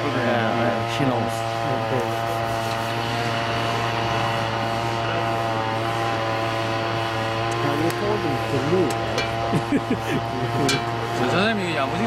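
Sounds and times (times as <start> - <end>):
motor running steadily: 0.0 - 12.0.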